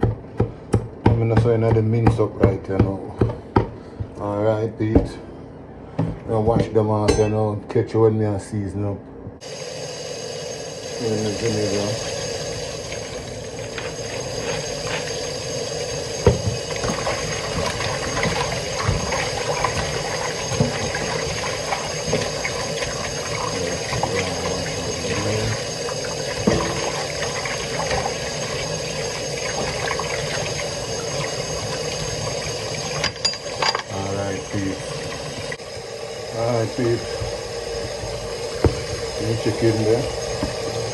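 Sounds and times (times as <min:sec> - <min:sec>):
kitchen tap running: 0:10.8 - 0:35.6, 0:36.4 - 0:40.9.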